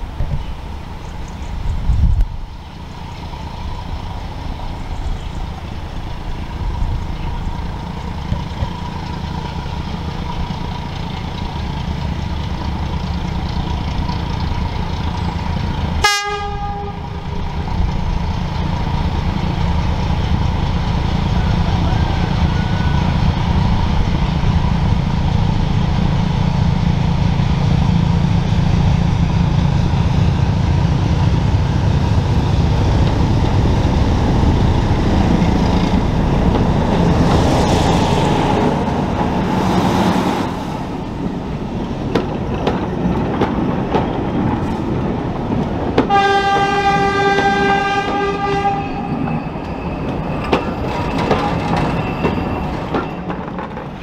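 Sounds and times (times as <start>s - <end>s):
diesel locomotive engine running: 0.0s - 54.0s
train horn blast: 16.0s - 17.4s, 46.1s - 49.2s
wheels clicking over rail joints: 40.9s - 48.5s, 49.1s - 54.0s.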